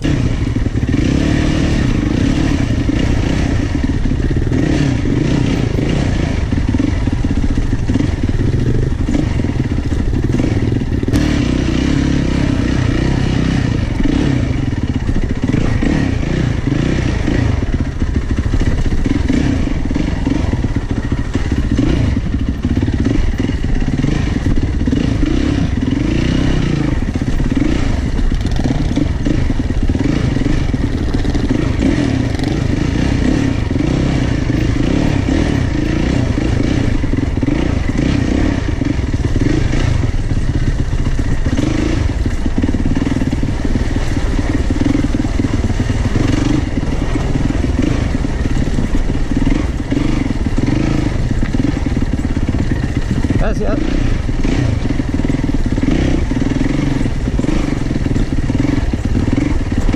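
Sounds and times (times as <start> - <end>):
motorcycle engine revving: 0.0 - 59.9.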